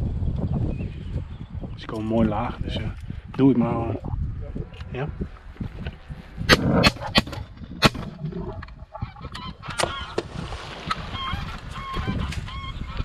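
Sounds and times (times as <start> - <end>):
sharp cracks: 6.5 - 8.2.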